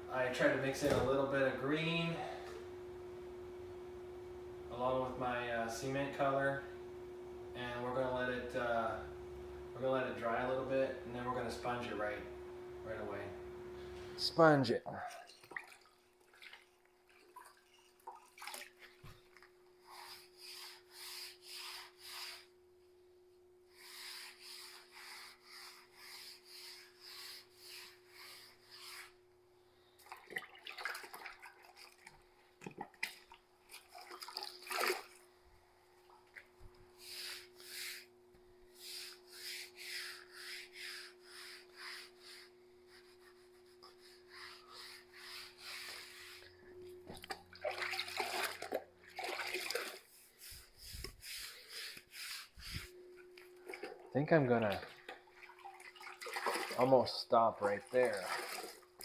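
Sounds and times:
faint steady hum: 0.0s - 59.0s
sponge rinsed in bucket of water: 15.1s - 22.5s, 30.0s - 35.4s, 47.1s - 52.9s, 53.5s - 59.0s
wet sponge rubbing on concrete: 19.8s - 22.6s, 23.7s - 29.2s, 37.0s - 38.1s, 38.7s - 46.5s, 49.8s - 52.9s.

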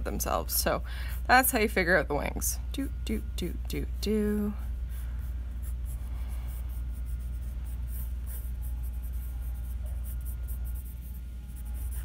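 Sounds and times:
steady low hum: 0.0s - 12.0s
pencil scratching on paper: 4.8s - 12.0s.

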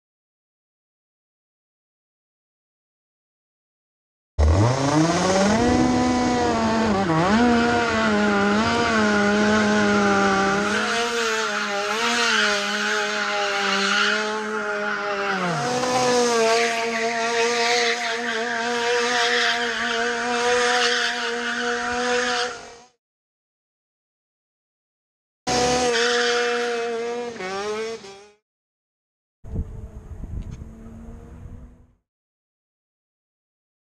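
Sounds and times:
two-stroke kart engine revving: 4.4s - 23.0s, 25.5s - 28.4s, 29.6s - 31.9s.

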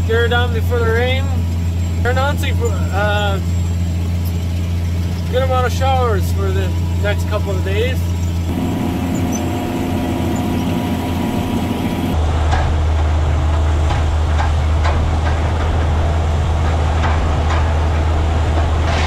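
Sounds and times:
tractor engine droning: 0.0s - 19.0s
harrow dragged through stubble: 8.5s - 12.2s.

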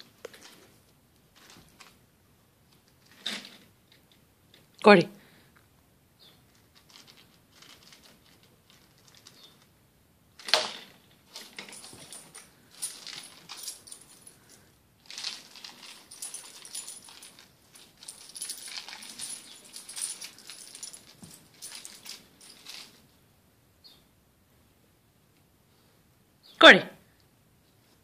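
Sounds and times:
metal dog tags jingling: 11.3s - 23.0s.

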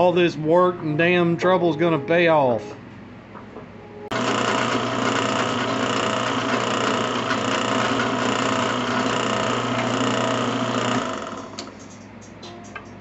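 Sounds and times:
drill bit cutting steel: 4.1s - 11.6s
drill press motor hum: 4.1s - 11.9s.

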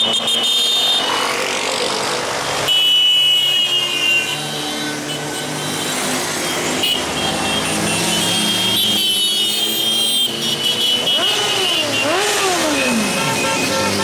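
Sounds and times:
vehicle engines running: 4.4s - 14.0s
engine revving: 11.0s - 14.0s.

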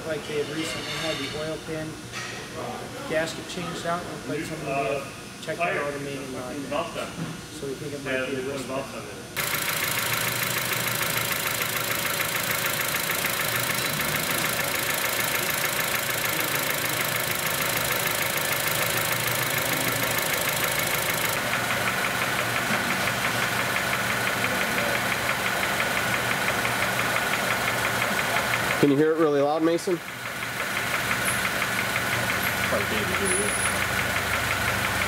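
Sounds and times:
car engine running: 9.4s - 29.0s, 30.0s - 35.0s
fast even engine knocking: 9.4s - 29.0s, 30.0s - 35.0s.

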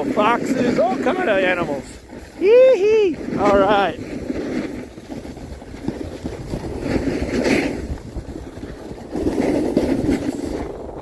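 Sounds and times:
rough rumble over packed snow: 0.0s - 11.0s
wind buffeting microphone: 0.0s - 11.0s.

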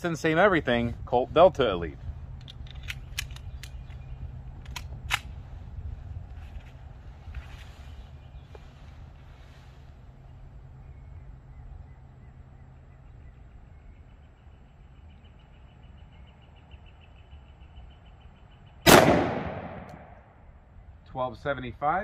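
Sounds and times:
pistol shot with echo: 18.9s - 20.4s.

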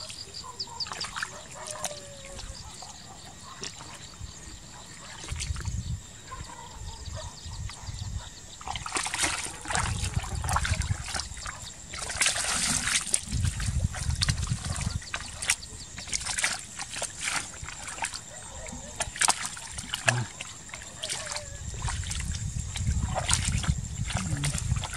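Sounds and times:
bare feet squelching in mud: 0.0s - 5.7s, 8.6s - 24.9s.

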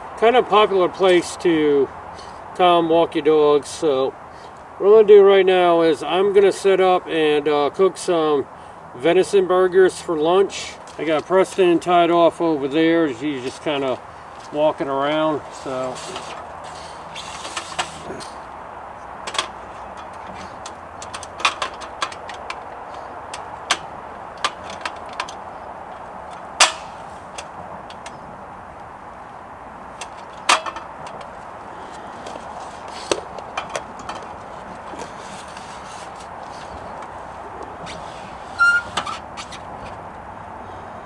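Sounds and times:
steady background hiss: 0.0s - 41.0s
cooking gear clicks and knocks: 19.3s - 25.4s.

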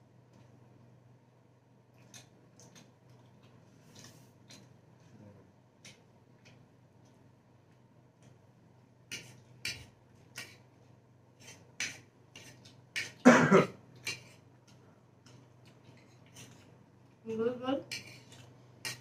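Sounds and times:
person coughing: 13.2s - 13.8s
cutlery scraping plates: 17.9s - 19.0s.

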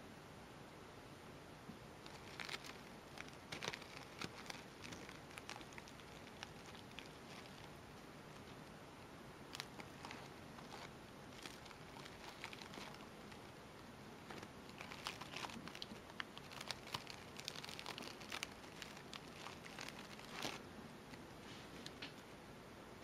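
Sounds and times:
fabric rustling and crinkling: 2.0s - 8.7s, 9.5s - 22.2s
loud crackle: 9.5s - 13.5s, 14.2s - 20.6s.

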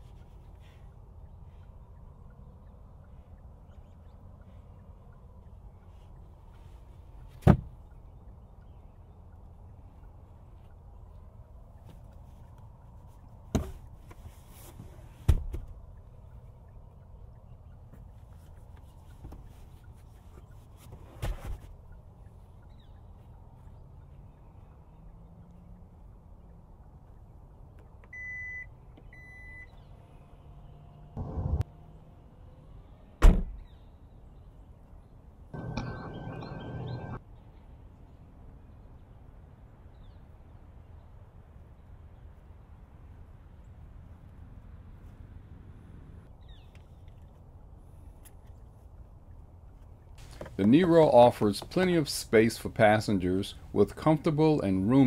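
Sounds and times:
faint bird chirp: 0.0s - 13.4s, 21.9s - 27.3s, 33.6s - 39.2s
low outdoor rumble: 0.0s - 55.0s
loud steady hum: 35.6s - 37.2s.

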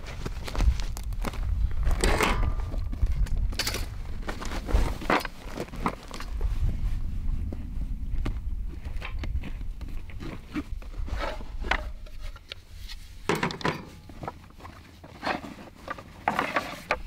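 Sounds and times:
wind rumbling on microphone: 0.0s - 13.3s
wooden boards knocking and scraping: 15.2s - 17.0s.

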